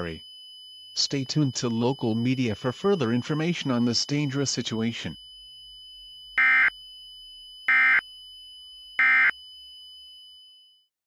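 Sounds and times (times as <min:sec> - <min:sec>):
faint steady hum: 0:00.0 - 0:10.8
loud digital data buzzing bursts: 0:06.3 - 0:06.8, 0:07.6 - 0:08.0, 0:09.0 - 0:09.4.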